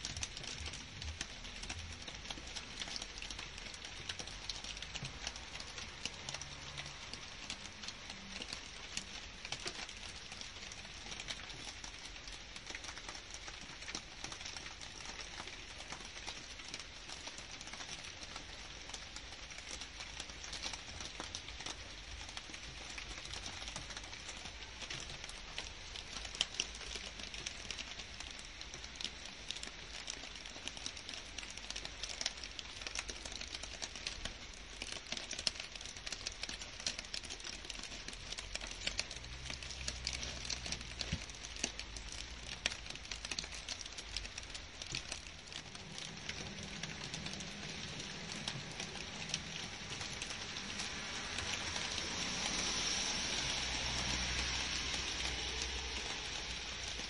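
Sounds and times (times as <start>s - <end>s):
rain pattering on leaves: 0.0s - 57.0s.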